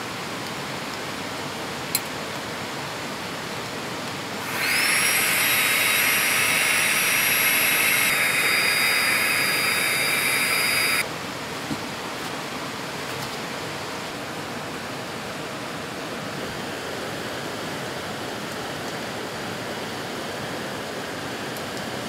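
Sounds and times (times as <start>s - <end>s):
air pump whining: 4.4s - 11.0s.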